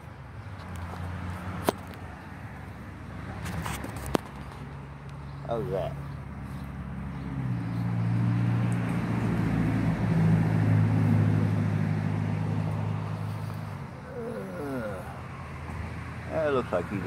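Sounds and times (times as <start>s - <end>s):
vehicle engine running: 3.4s - 17.0s.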